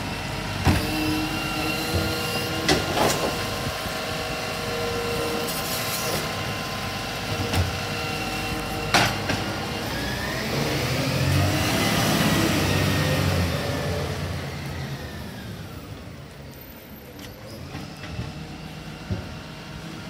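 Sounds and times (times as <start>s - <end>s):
hydraulic whine: 0.0s - 20.0s.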